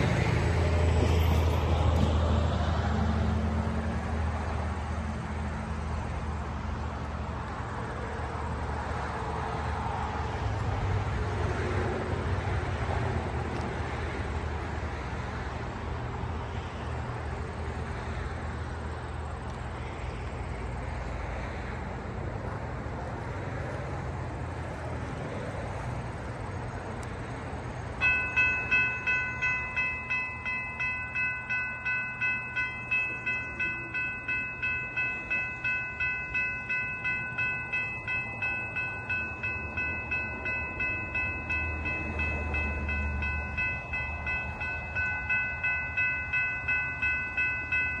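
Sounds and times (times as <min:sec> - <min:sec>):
railroad crossing bell ringing: 0:00.0 - 0:02.2, 0:24.6 - 0:48.0.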